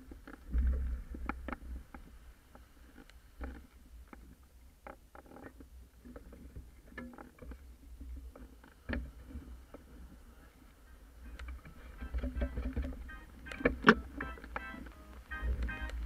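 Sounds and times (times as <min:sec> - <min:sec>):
rigging clicks and knocks: 0:11.4 - 0:14.6.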